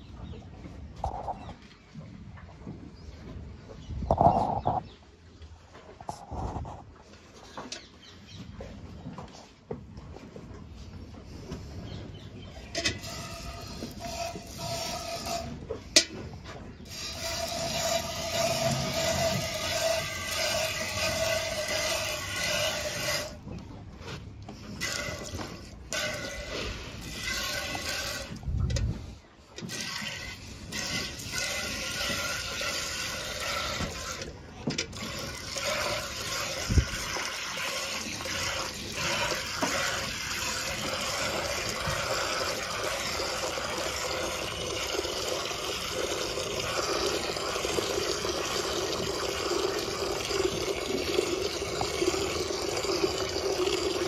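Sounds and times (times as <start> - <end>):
milk squirting into a pail: 16.9 - 23.4, 24.7 - 28.4, 29.6 - 54.0.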